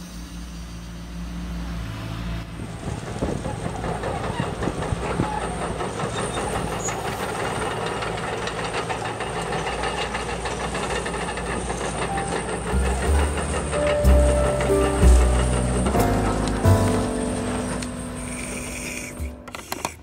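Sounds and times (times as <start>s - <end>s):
rattling clatter: 2.8s - 20.0s
small electric motors whirring: 16.9s - 20.0s.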